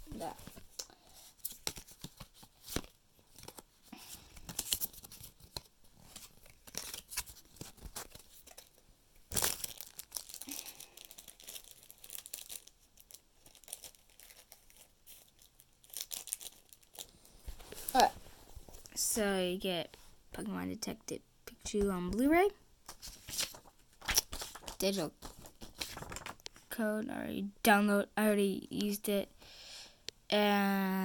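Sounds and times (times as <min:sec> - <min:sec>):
plastic and paper crinkling: 0:00.0 - 0:19.0, 0:22.8 - 0:26.7.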